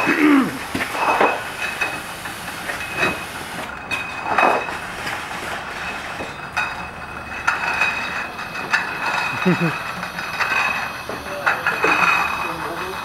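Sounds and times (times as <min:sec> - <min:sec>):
bottling machine whine and hiss: 0:00.0 - 0:13.0
clanking glass bottles: 0:00.0 - 0:13.0.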